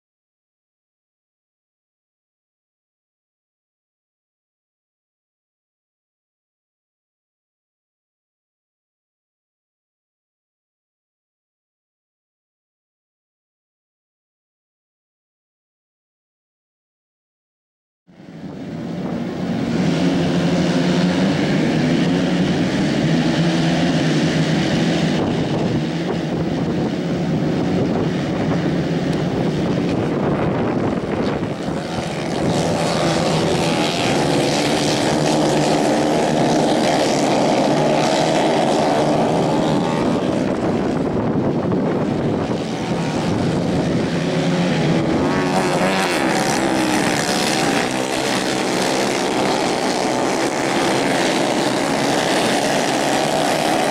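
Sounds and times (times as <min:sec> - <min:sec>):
racing kart engines: 0:18.4 - 0:31.2, 0:32.3 - 0:53.9.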